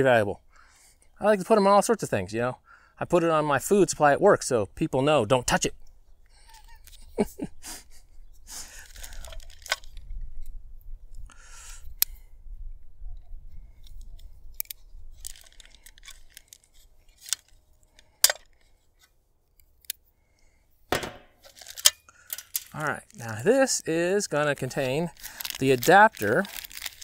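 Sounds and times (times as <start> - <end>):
plastic bag crinkling: 8.7 - 10.0, 15.2 - 17.6, 21.4 - 27.0.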